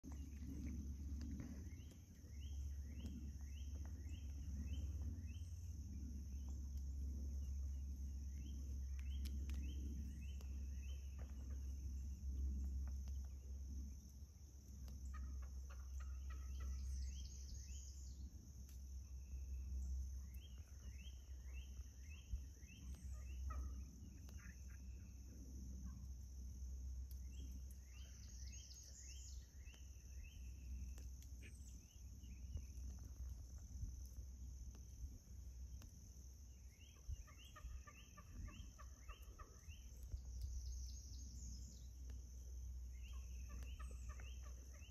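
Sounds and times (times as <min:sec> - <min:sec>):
low rumble: 0:00.0 - 0:44.9
wild turkeys calling: 0:14.9 - 0:17.4, 0:20.4 - 0:25.1, 0:36.6 - 0:40.9, 0:42.9 - 0:44.9.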